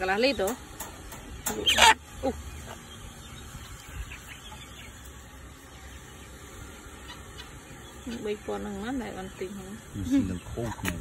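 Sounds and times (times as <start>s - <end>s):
chicken squawking: 1.6s - 2.8s.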